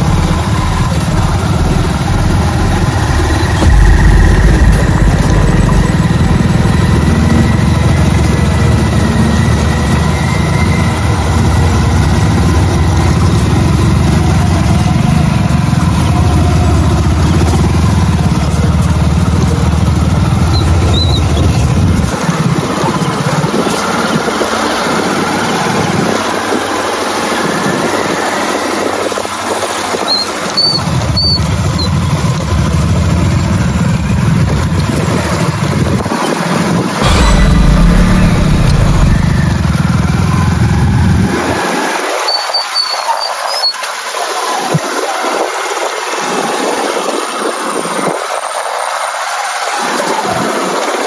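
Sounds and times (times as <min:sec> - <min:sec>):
loud rushing noise: 0:00.0 - 0:11.7, 0:37.0 - 0:42.2
motorcycle engines droning: 0:00.0 - 0:42.3.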